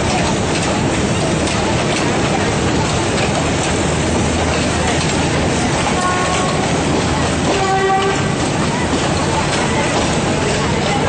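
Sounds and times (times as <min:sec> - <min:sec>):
train wheels rumbling and rattling: 0:00.0 - 0:11.0
train horn toots: 0:06.0 - 0:06.7, 0:07.5 - 0:08.4.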